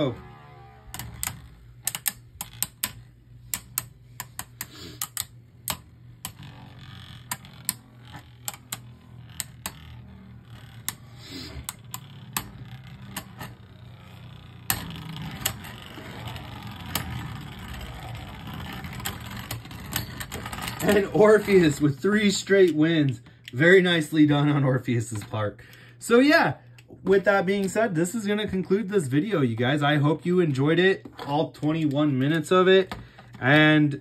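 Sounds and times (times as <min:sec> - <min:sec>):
spinning tops clacking: 0:00.0 - 0:21.9
spinning tops scraping: 0:00.0 - 0:24.6.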